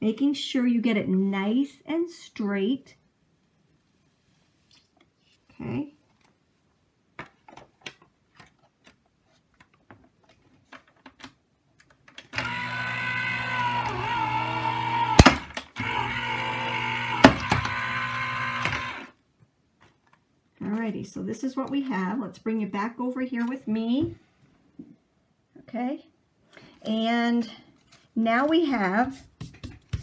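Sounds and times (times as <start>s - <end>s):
die-cutting machine motor running: 12.4s - 19.1s.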